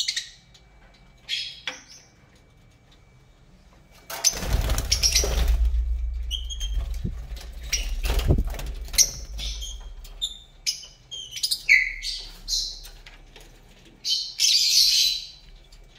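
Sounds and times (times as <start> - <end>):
bird wings flapping: 4.1 - 10.1
high bird chirps: 4.3 - 12.8.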